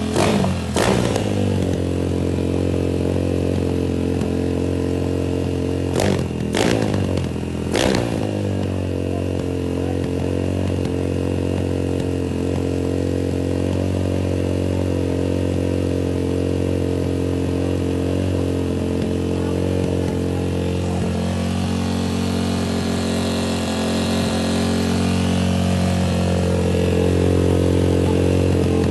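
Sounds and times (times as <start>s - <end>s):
motorcycle engine revving and idling: 0.0s - 28.9s.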